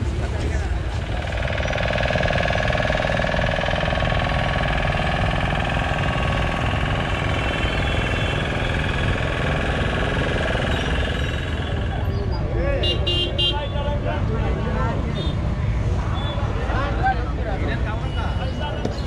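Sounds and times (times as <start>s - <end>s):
engine running with knocking beat: 0.0s - 12.4s, 17.7s - 19.0s.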